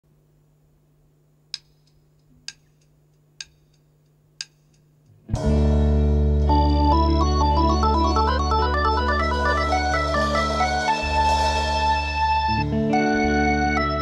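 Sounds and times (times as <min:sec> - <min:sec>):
organ-like keyboard chords: 0:05.3 - 0:14.0
deep bass: 0:05.4 - 0:13.4.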